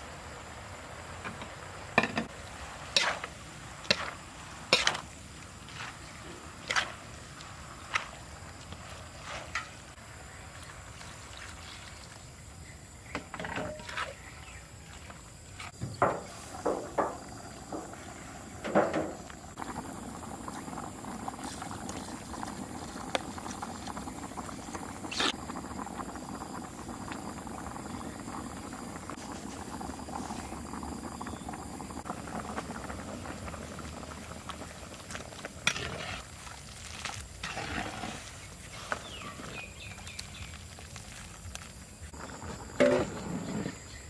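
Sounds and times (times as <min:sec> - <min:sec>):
liquid boiling in a pot: 0:00.0 - 0:44.0
knock: 0:15.8 - 0:17.8.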